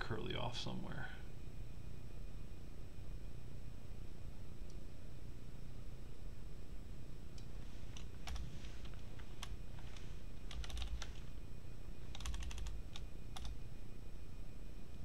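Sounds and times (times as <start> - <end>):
typing on computer keyboard: 8.0 - 8.5, 10.5 - 11.3, 12.1 - 13.6.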